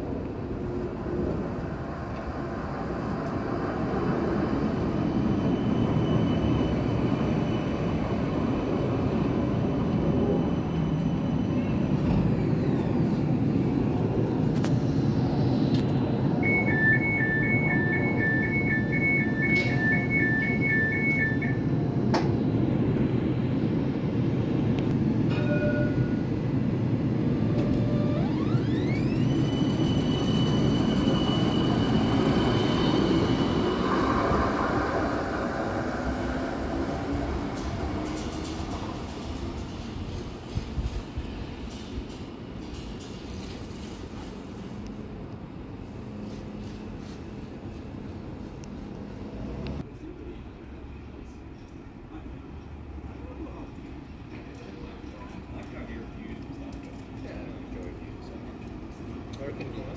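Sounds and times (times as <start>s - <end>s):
tram motor whine: 3.2s - 40.5s
two-tone beeping: 16.4s - 21.7s.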